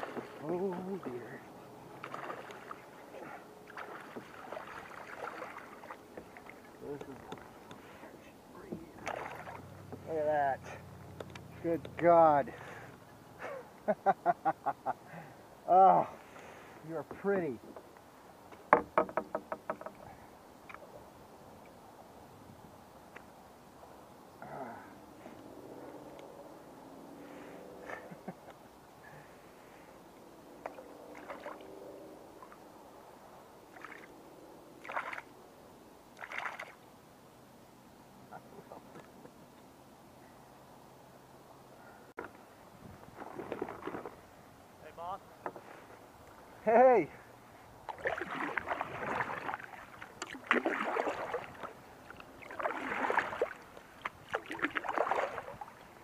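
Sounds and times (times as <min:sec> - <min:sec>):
paddle strokes splashing in water: 0:00.0 - 0:10.1, 0:30.6 - 0:32.6, 0:33.7 - 0:34.1, 0:34.8 - 0:35.3, 0:36.2 - 0:36.8, 0:43.0 - 0:44.4, 0:47.8 - 0:56.0.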